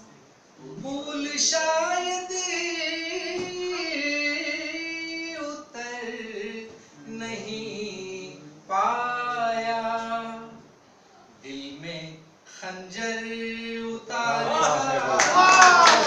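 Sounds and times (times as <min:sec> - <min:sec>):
man singing unaccompanied: 0:00.6 - 0:10.7, 0:11.4 - 0:15.1.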